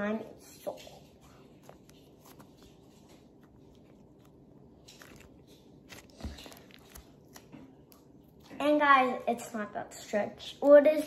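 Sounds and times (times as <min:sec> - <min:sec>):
slime crackling and squishing: 0:01.3 - 0:08.7.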